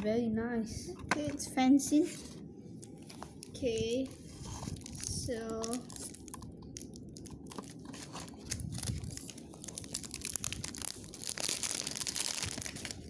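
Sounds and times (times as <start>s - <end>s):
cardboard box rustling and scraping: 4.2s - 5.1s, 7.6s - 8.5s.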